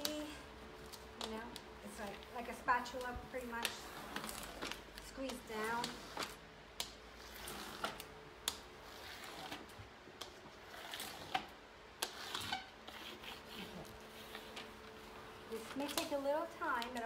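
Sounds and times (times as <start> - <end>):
plastic tool rubbing: 2.8 - 6.4, 7.1 - 17.0
light clicks and taps: 15.6 - 17.0.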